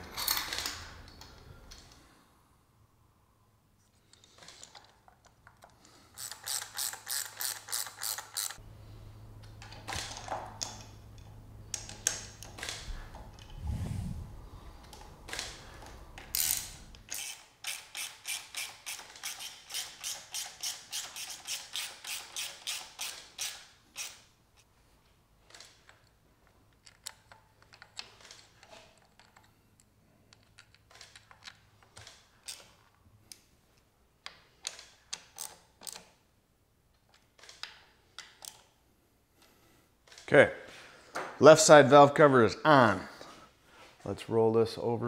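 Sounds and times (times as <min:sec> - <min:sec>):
hand ratchet clicking: 0:04.2 - 0:08.6, 0:16.2 - 0:24.2.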